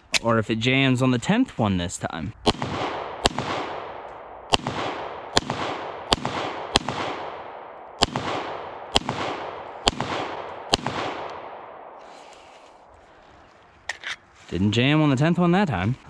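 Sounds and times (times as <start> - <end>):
pistol shots with echo: 2.4 - 12.0.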